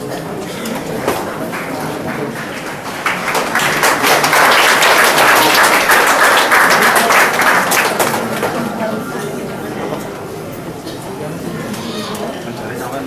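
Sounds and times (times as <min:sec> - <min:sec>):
audience applause: 0:00.8 - 0:08.6.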